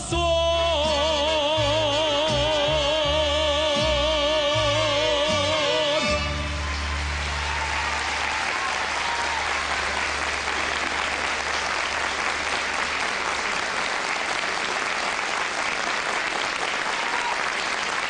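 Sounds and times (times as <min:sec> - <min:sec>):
studio audience applauding: 0:06.0 - 0:18.0.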